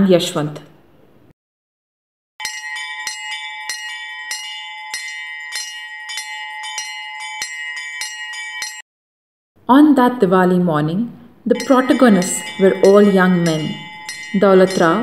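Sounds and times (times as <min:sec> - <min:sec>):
temple bell ringing: 0:02.4 - 0:08.8, 0:11.5 - 0:15.0.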